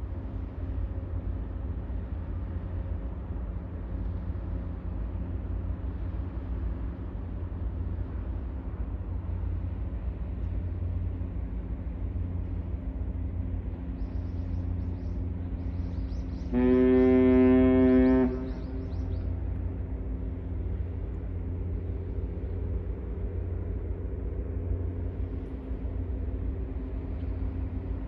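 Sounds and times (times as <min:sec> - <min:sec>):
low rumble: 0:00.0 - 0:28.0
ship's horn blast: 0:16.5 - 0:19.3.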